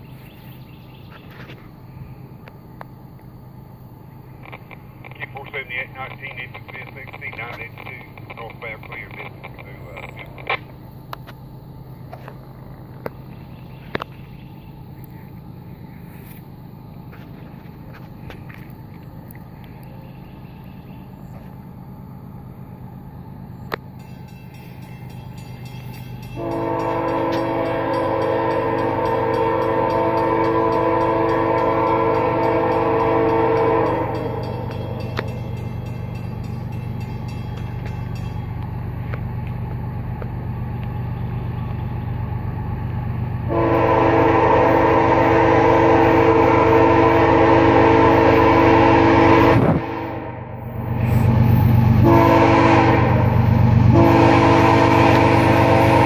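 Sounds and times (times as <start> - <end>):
low hum: 0.0 - 56.0
locomotive air horn blasts: 26.3 - 35.3, 43.4 - 51.3, 52.0 - 56.0.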